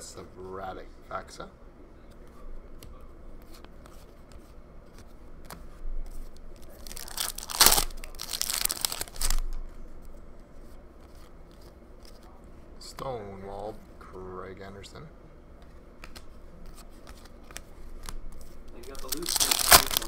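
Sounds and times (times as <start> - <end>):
foil wrapper tearing and rustling: 6.6 - 9.5, 18.0 - 20.0.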